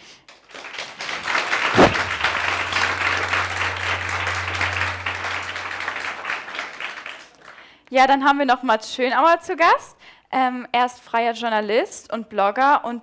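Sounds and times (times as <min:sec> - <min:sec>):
audience applauding: 0:00.3 - 0:07.8
loud sharp knock: 0:01.7 - 0:02.6
low steady hum: 0:01.7 - 0:07.2.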